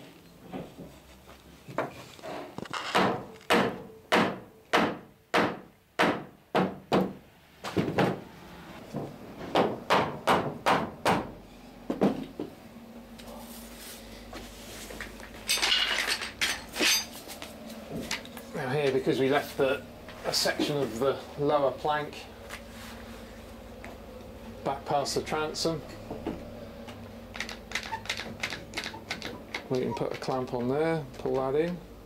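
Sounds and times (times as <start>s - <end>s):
sharp knocks on wood: 2.9s - 8.2s, 9.0s - 11.3s.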